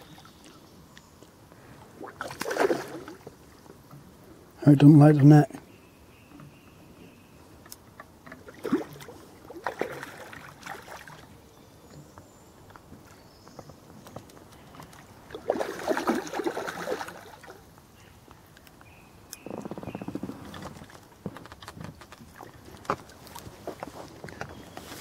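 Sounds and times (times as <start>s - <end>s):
fish splashing in water: 2.0s - 3.6s, 8.2s - 11.4s, 14.8s - 17.7s.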